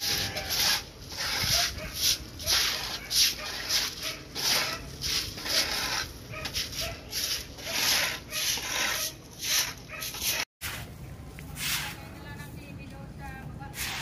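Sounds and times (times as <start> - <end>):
broom scrubbing wet concrete: 0.0 - 12.5, 13.6 - 14.0.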